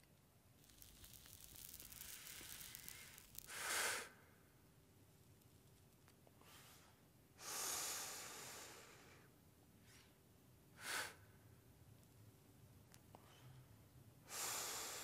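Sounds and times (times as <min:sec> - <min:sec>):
person exhaling smoke: 0:01.4 - 0:04.2
sharp puff of breath: 0:03.5 - 0:04.2.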